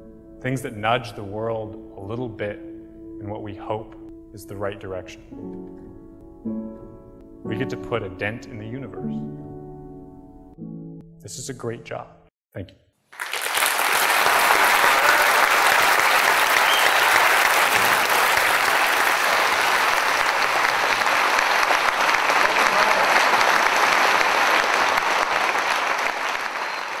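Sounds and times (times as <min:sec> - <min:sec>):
audience applauding: 0:13.1 - 0:27.0.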